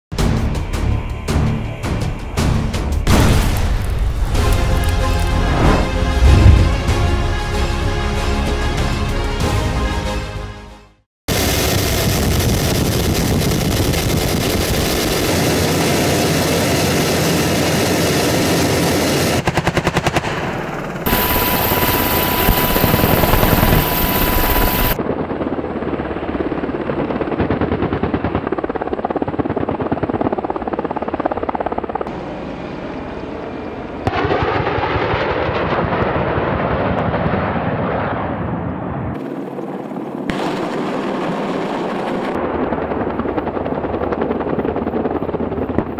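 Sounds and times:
steady tone: 5.4s - 7.4s
helicopter rotor and engine: 11.3s - 35.0s, 38.8s - 45.9s
cannon fire bursts: 34.0s - 38.5s, 40.3s - 43.1s.

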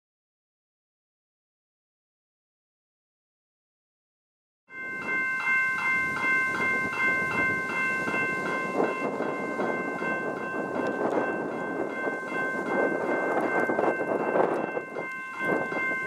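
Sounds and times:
electronic crossing bell ringing: 4.7s - 16.0s.

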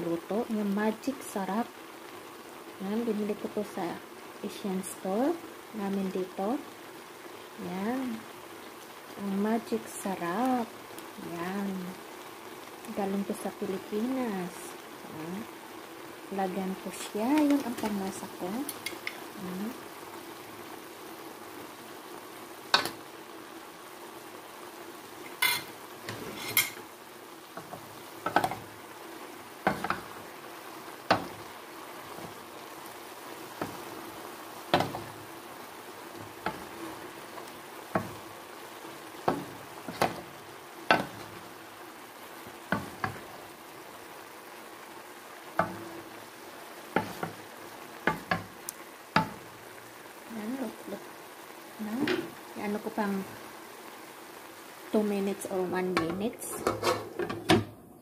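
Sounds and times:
food sizzling in a wok: 0.0s - 58.0s
wooden spatula scraping a pan: 25.3s - 26.8s, 46.9s - 48.5s, 56.4s - 57.4s.

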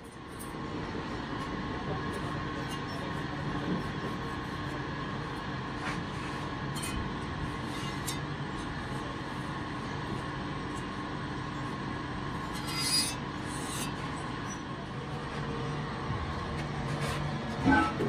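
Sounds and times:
cutting tool scraping iron: 12.5s - 14.0s.

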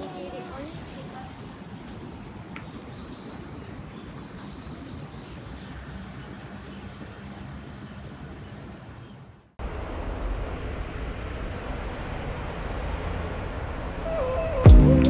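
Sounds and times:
distant traffic: 0.0s - 15.0s
low rumble: 9.6s - 15.0s.

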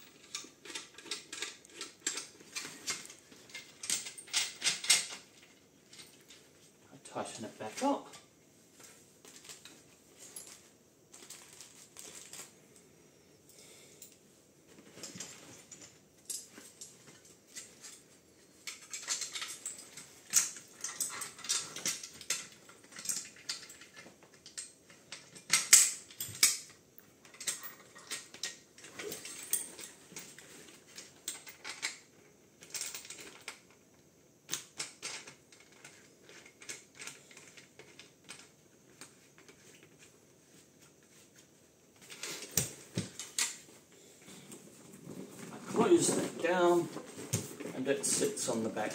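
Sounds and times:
metal fittings clicking and clinking: 0.0s - 6.4s
straps rustling: 0.0s - 12.8s, 14.6s - 24.1s, 38.8s - 48.9s.

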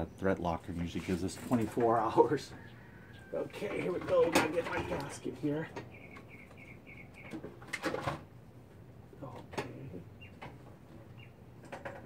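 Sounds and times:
parts knocking and clattering: 3.6s - 5.9s, 7.3s - 8.3s, 11.6s - 12.0s
small bird chirping: 5.6s - 7.6s, 10.1s - 11.4s.

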